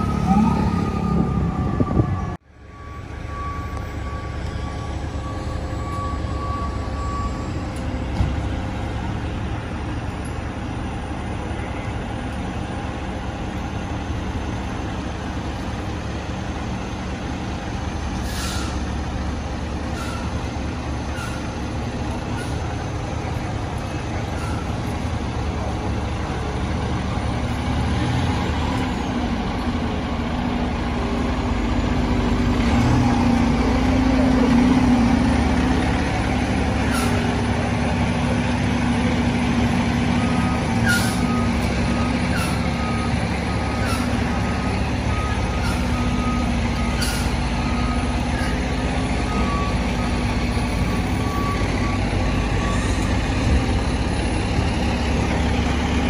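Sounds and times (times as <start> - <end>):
reversing alarm beeping: 0.0 - 7.8, 40.1 - 53.2
fire engine diesel running: 0.0 - 56.0
air brake hisses: 18.2 - 18.8.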